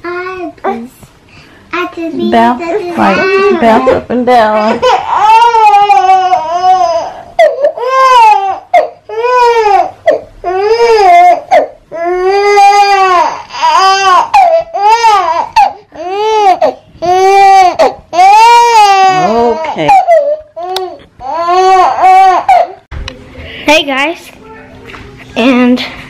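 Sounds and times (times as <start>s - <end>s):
infant crying loudly: 4.6s - 22.8s.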